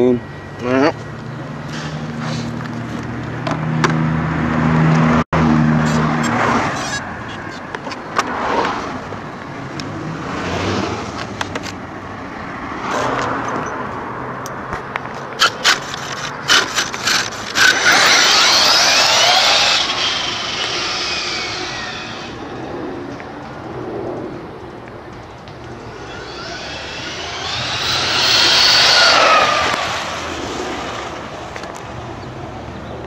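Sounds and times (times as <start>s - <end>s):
high whine of electric motor: 16.6s - 24.5s, 25.1s - 31.4s.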